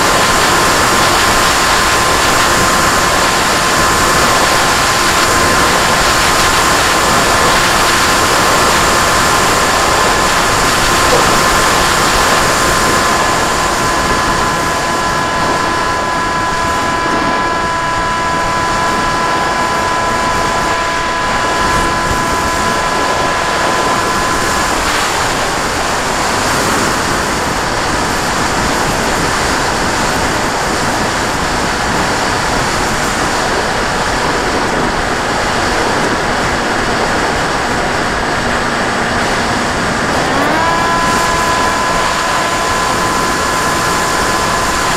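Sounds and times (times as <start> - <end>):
model airplane motor whine: 0.0 - 44.9
wind rushing: 0.0 - 44.9.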